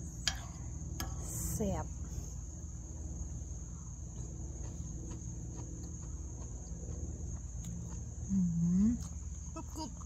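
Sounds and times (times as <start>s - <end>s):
faint chewing clicks: 4.1s - 8.2s.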